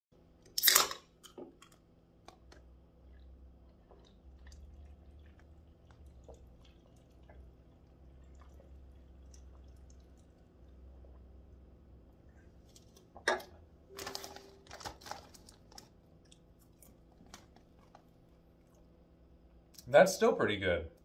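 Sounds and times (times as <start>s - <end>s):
person gulping drink: 0.5s - 13.3s.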